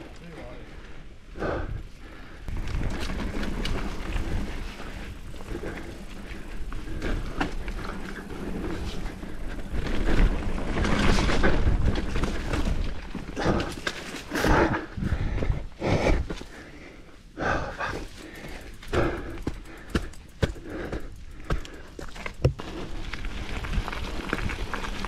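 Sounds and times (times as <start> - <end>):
tyres on dirt: 0.0 - 17.1, 17.7 - 25.0
wind rumbling on microphone: 0.8 - 16.4, 17.5 - 25.0
bike clattering over bumps: 2.5 - 14.6, 17.8 - 25.0.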